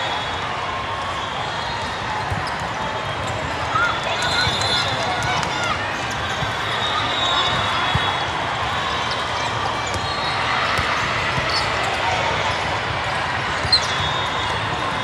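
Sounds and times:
many voices in a hall: 0.0s - 15.0s
volleyballs struck and bouncing: 9.1s - 12.3s.

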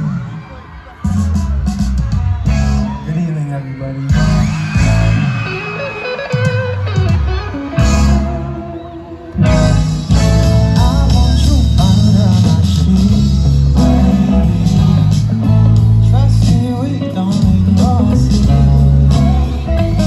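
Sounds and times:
live band playing: 0.0s - 20.0s
person singing: 10.1s - 20.0s.

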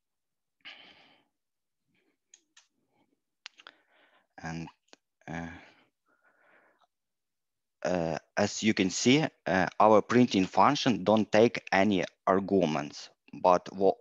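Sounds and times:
person breathing: 0.6s - 2.3s, 2.9s - 4.4s, 5.3s - 6.9s.

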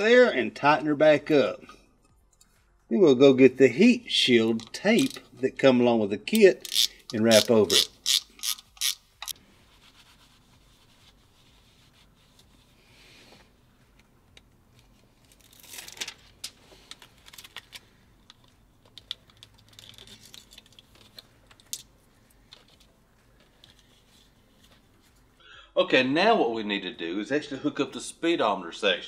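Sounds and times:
tape crinkling and tearing: 15.2s - 21.9s.

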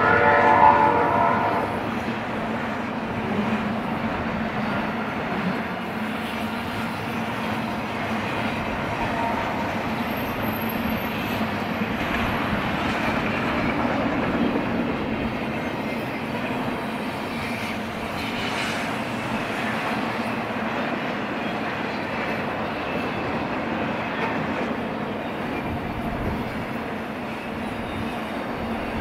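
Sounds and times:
freight cars rolling on rails: 0.0s - 29.0s.

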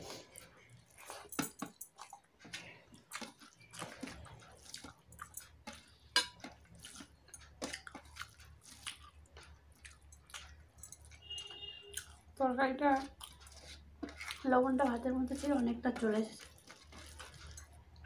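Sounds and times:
person chewing: 0.0s - 18.0s
fingers mixing rice on steel plate: 0.3s - 18.0s
wet mouth clicks and smacks: 6.4s - 12.2s.

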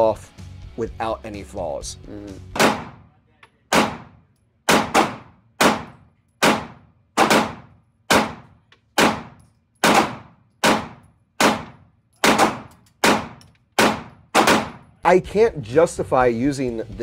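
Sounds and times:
pistol shots echoing indoors: 2.6s - 3.1s, 3.7s - 14.9s.

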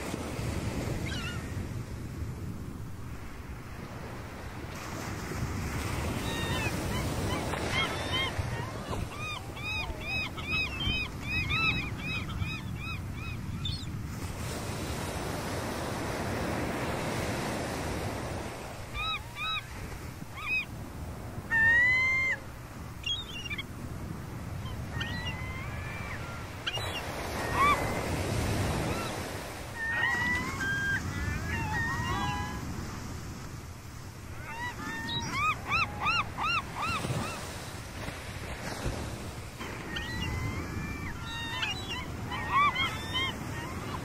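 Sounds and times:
gulls calling: 6.0s - 14.0s, 15.0s - 20.7s, 21.4s - 23.7s, 24.5s - 32.9s, 34.2s - 38.9s, 39.6s - 44.0s.

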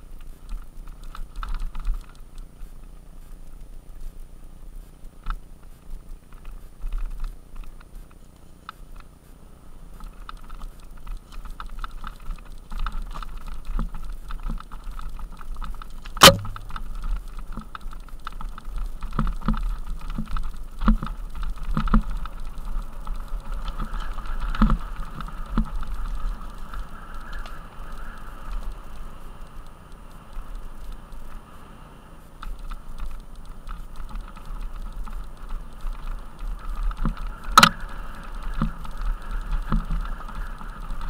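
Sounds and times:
bike rattling over bumps: 9.9s - 31.6s, 32.4s - 41.0s
rear hub clicking buzz: 10.0s - 41.0s
loud crack: 16.2s - 16.9s.

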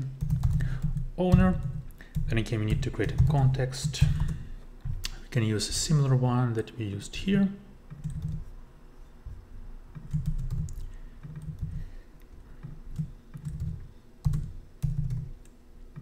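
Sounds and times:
typing on laptop keyboard: 0.2s - 4.4s, 7.9s - 8.5s, 10.0s - 11.8s, 12.6s - 16.0s.

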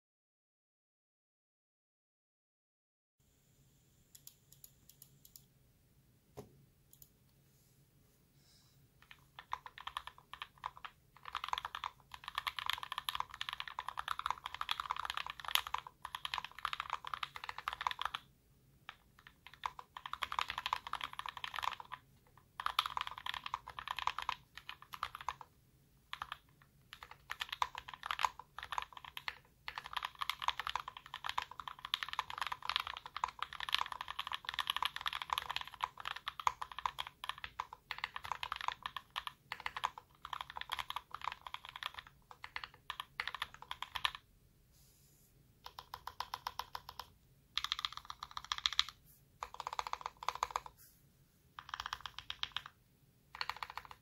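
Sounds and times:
mechanical keyboard typing: 9.0s - 25.5s, 26.1s - 44.2s, 45.6s - 50.8s, 51.6s - 54.0s.

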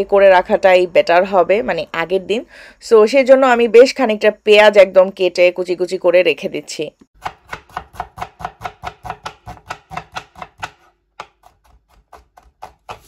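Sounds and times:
knife slicing onion on wooden board: 7.2s - 13.0s.

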